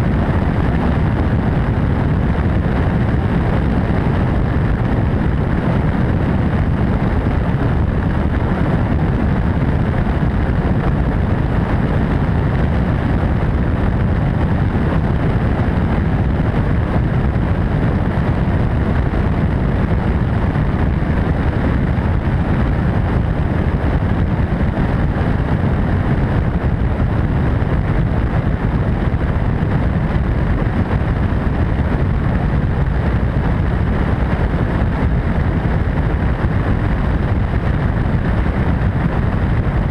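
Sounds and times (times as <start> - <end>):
helicopter rotor and turbine noise: 0.0 - 39.9.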